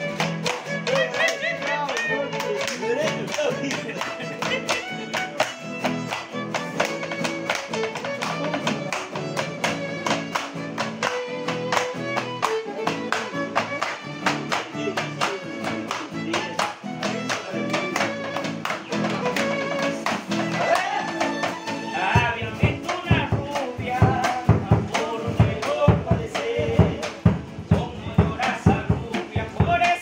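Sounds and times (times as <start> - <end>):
strummed acoustic guitars: 0.0 - 30.0
violin: 0.0 - 30.0
man singing: 14.7 - 30.0
bass drum beats: 22.2 - 30.0.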